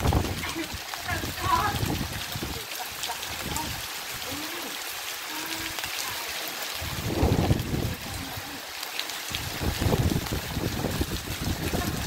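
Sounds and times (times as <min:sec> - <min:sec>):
wind gusts on microphone: 0:00.0 - 0:04.4, 0:06.7 - 0:08.6, 0:09.3 - 0:12.0
heavy rain on leaves: 0:00.0 - 0:12.0.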